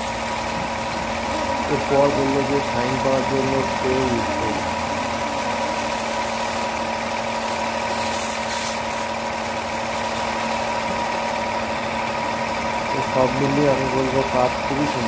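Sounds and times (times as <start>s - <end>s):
water jet hissing on car: 0.0s - 12.0s
pressure washer motor humming: 0.0s - 15.0s.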